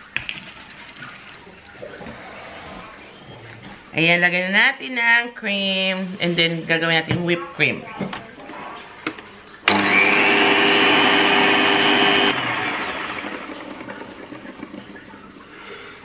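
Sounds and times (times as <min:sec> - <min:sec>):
stand mixer motor whine: 0:09.7 - 0:15.0.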